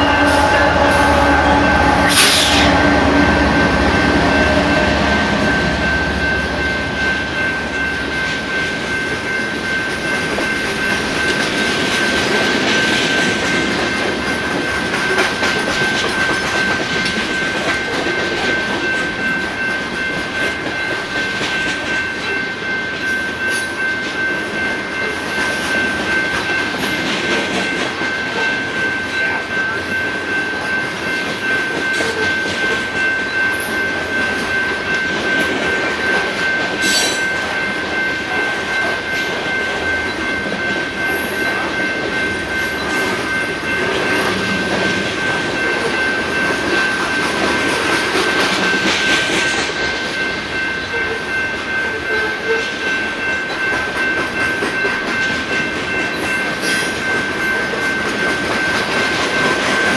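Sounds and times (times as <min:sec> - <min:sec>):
high-pitched ring: 0:00.0 - 0:11.4, 0:27.6 - 0:59.9
freight train wheels rumbling: 0:00.0 - 0:59.9.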